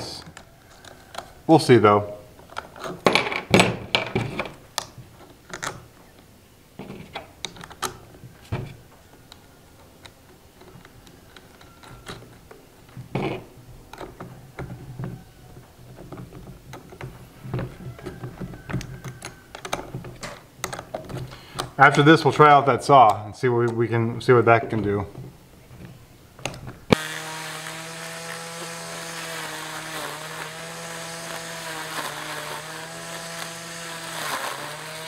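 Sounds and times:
clicks and knocks of plastic parts: 2.4s - 21.8s.

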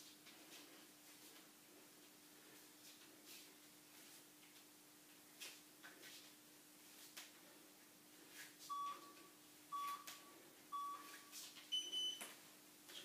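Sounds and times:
faint steady hum: 0.0s - 13.0s
timer beeps: 8.7s - 12.2s.

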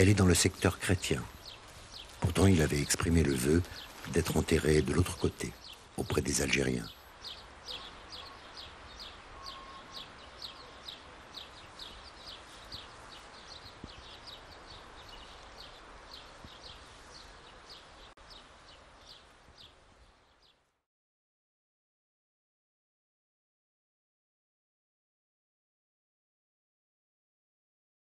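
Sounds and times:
bird chirping: 0.0s - 20.7s
outdoor background noise: 0.0s - 20.8s.

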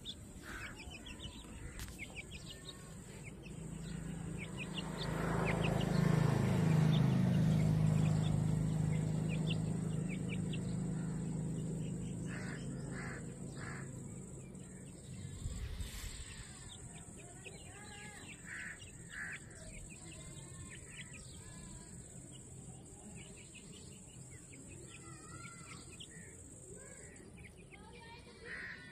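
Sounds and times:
harsh caw-like bird calls: 0.0s - 2.9s, 8.9s - 15.4s, 17.9s - 19.8s, 28.4s - 28.9s
low engine-like drone: 0.0s - 27.2s.

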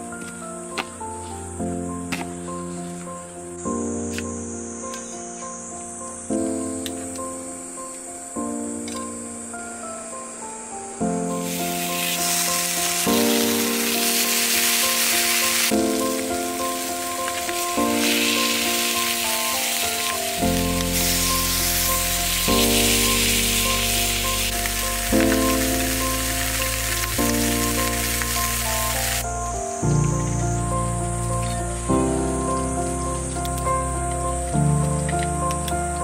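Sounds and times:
background music with bass: 11.2s - 36.0s
pork sizzling in hot oil: 11.3s - 35.7s.

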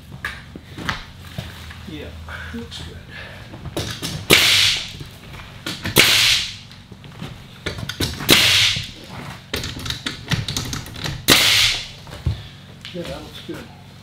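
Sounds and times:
nail gun firing: 3.8s - 5.0s, 5.7s - 6.6s, 7.9s - 9.0s, 9.6s - 11.9s.

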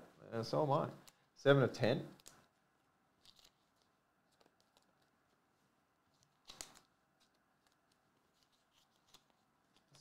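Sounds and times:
plastic card sleeve rustling: 2.1s - 10.0s.

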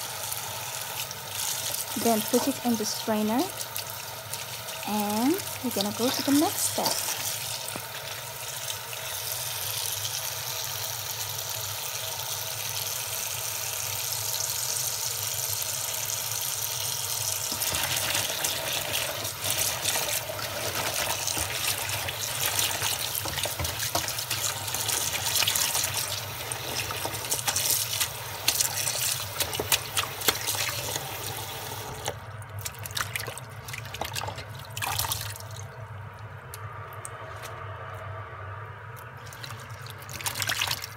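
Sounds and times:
tap water running into bowl: 0.0s - 35.6s
splashing leaves: 17.5s - 31.0s.

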